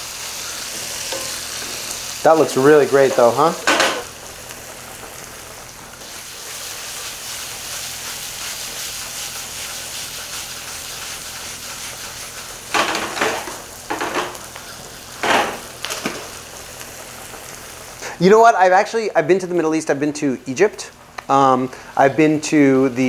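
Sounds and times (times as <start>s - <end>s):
onions sizzling in oil: 0.0s - 18.2s
stirring in a pan: 6.0s - 15.2s.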